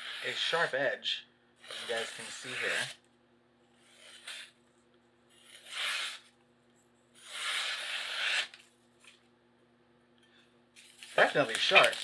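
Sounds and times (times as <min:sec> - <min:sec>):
knife slicing paper: 0:01.6 - 0:03.0, 0:03.8 - 0:04.6, 0:05.3 - 0:06.3, 0:07.2 - 0:08.6, 0:10.8 - 0:12.0.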